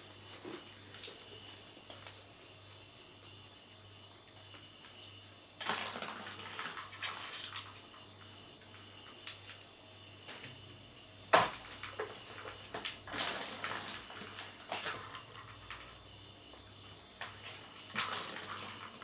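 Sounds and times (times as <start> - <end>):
plastic cat toy ball clattering: 5.6 - 8.1, 17.9 - 19.0.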